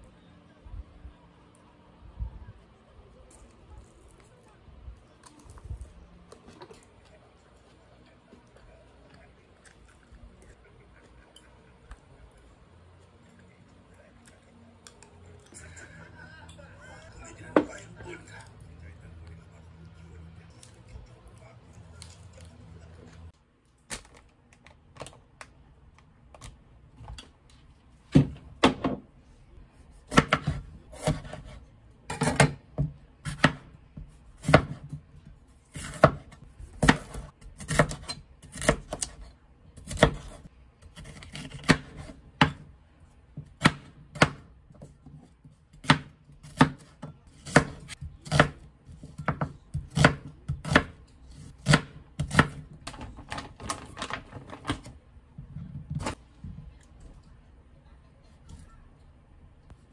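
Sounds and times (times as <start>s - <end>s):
knife chopping on wooden board: 30.1s - 31.6s, 34.4s - 35.0s, 45.8s - 51.0s.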